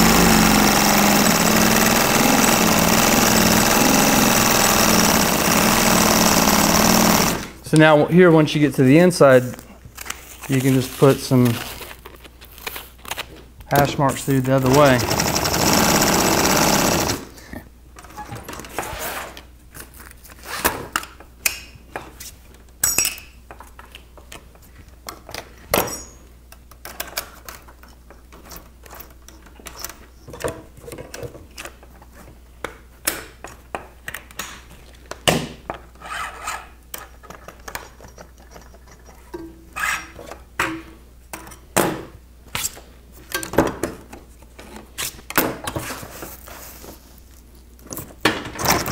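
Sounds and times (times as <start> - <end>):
sewing machine stitching: 0.0 - 7.6, 14.5 - 17.3.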